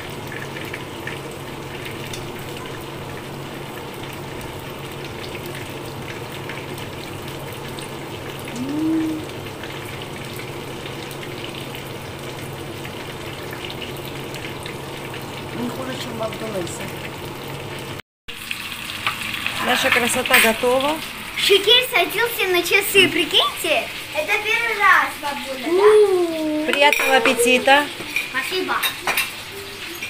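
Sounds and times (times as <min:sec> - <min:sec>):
chicken frying in oil: 0:00.0 - 0:30.0
person humming: 0:08.5 - 0:09.4, 0:25.7 - 0:26.8.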